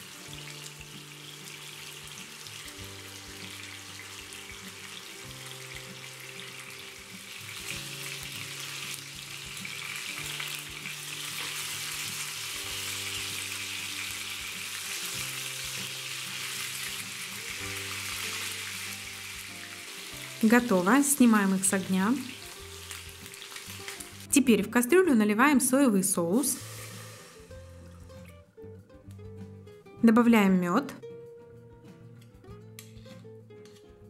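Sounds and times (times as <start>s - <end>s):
meat sizzling in a frying pan: 0.0s - 24.3s, 26.4s - 27.8s.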